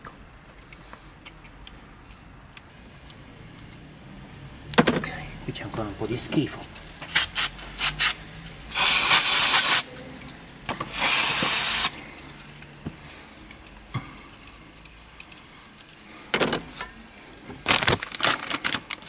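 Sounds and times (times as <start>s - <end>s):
spray can hissing: 7.1s - 9.9s, 10.9s - 11.9s.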